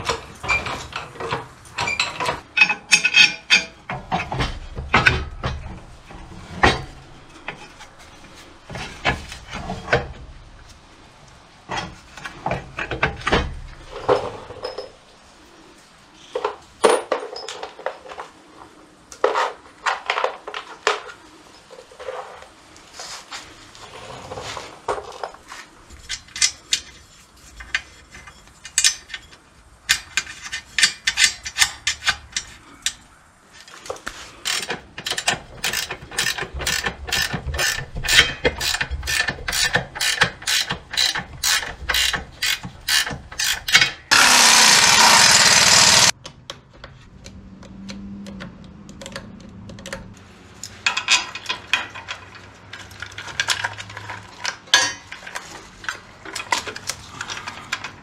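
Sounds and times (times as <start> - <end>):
ratchet wrench clicking: 34.4 - 46.2.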